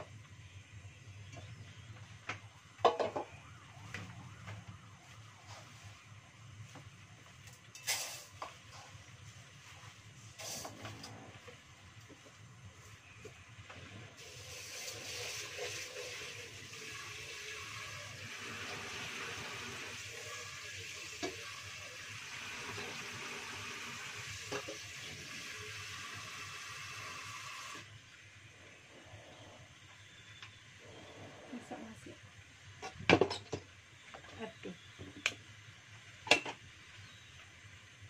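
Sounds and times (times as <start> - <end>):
tap water splashing into pot: 21.0 - 21.6.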